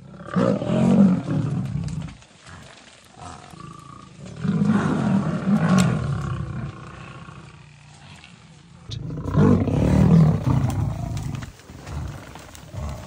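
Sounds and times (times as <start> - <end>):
lions growling: 0.0 - 13.0.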